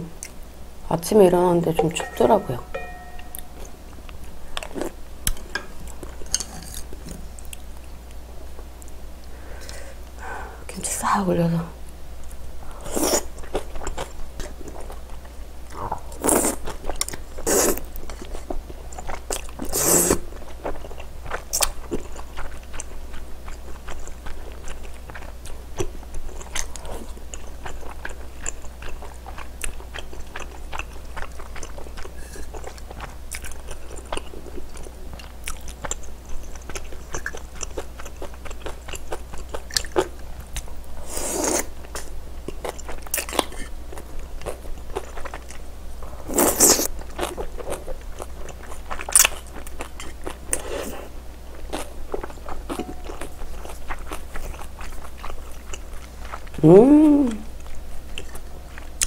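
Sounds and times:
person chewing: 12.8s - 45.6s, 46.3s - 59.0s.

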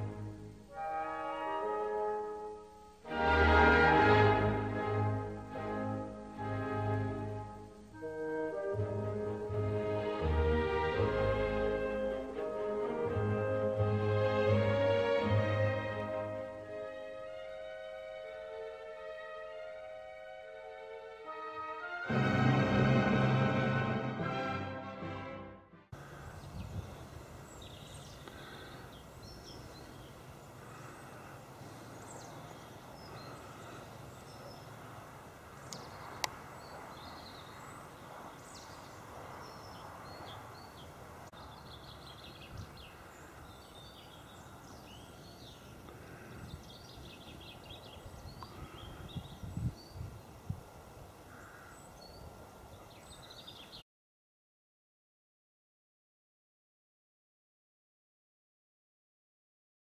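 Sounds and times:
outdoor hiss and rumble: 0.0s - 20.8s, 26.0s - 46.2s
small birds chirping: 26.0s - 53.8s.

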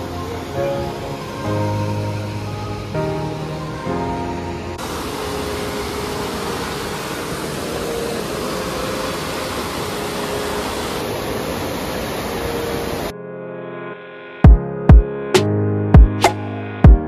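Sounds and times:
river rushing over rapids: 0.0s - 13.1s.

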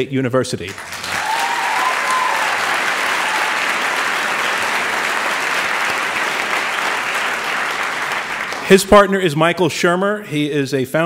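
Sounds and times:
audience applauding: 0.7s - 9.1s.

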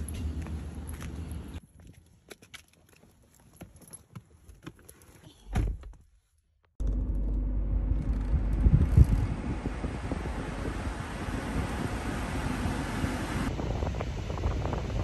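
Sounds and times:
rushing noise inside car: 6.8s - 15.0s.

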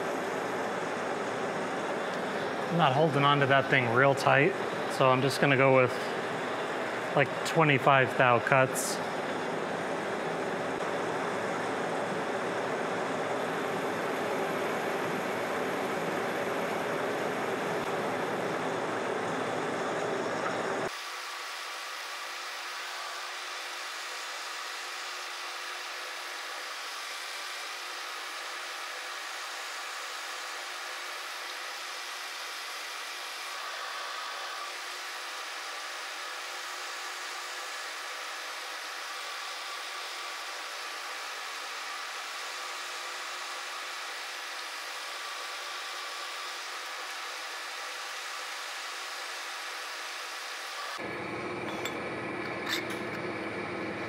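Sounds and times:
metal lathe running: 0.0s - 20.9s, 50.6s - 54.0s
metal lathe whirring: 0.0s - 54.0s.

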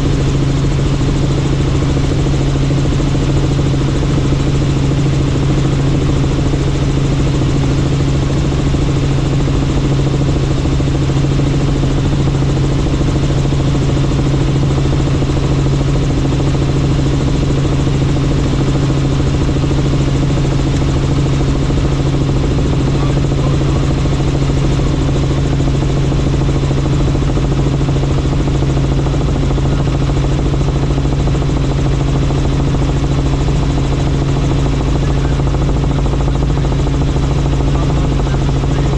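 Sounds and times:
helicopter engine and rotor drone: 0.0s - 38.9s.

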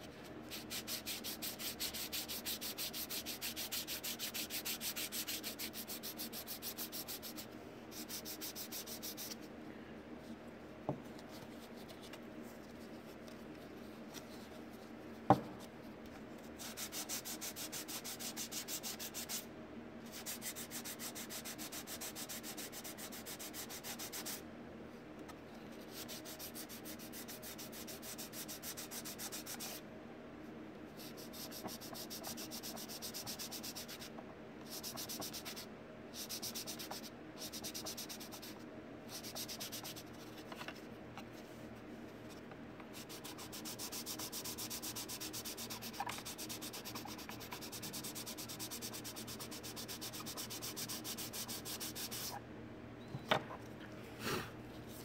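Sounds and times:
sandpaper rubbing on plastic: 43.0s - 52.4s.

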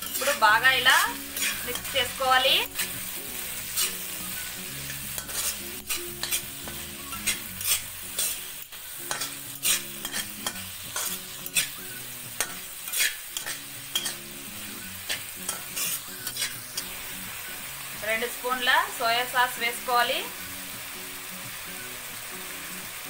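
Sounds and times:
metal spatula scraping a pan: 0.0s - 17.2s
vegetables sizzling in hot oil: 0.0s - 23.0s.

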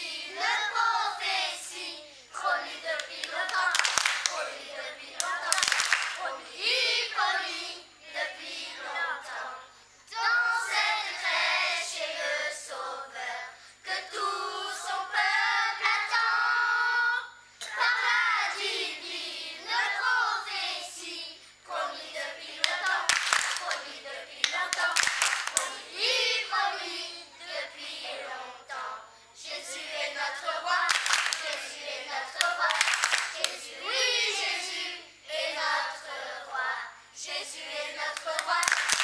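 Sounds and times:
children's choir singing: 0.0s - 39.0s
hand claps: 3.0s - 4.4s, 5.2s - 6.2s, 22.6s - 23.8s, 24.4s - 25.8s, 30.9s - 31.7s, 32.4s - 33.6s, 38.2s - 39.0s.

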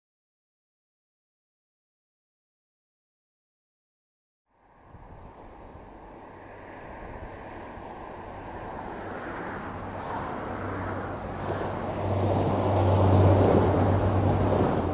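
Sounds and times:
train engine drone: 4.5s - 14.9s
train wheel rumble: 5.0s - 14.9s.

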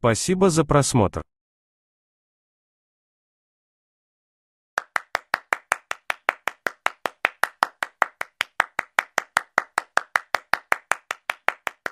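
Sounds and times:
hands clapping: 4.8s - 11.9s.

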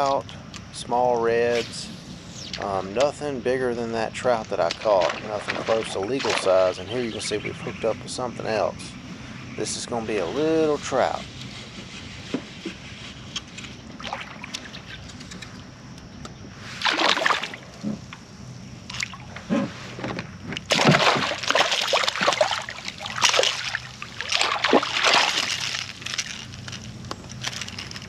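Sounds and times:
fish splashing at surface: 16.8s - 17.7s, 20.6s - 26.8s.

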